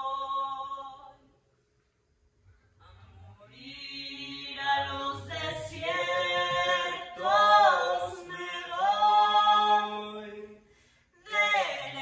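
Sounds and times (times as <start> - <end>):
person singing unaccompanied: 3.7 - 10.3.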